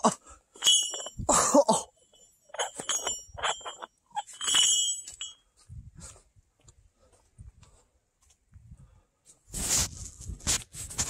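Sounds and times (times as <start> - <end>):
chain links clanking: 0.6 - 5.5.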